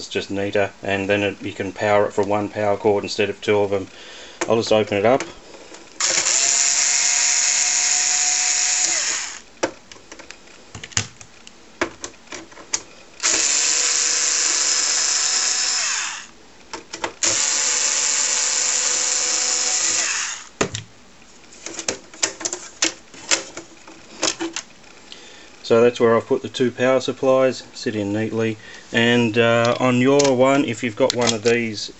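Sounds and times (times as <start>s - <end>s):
cordless screwdriver running: 6.0s - 9.4s, 13.2s - 16.3s, 17.2s - 20.5s.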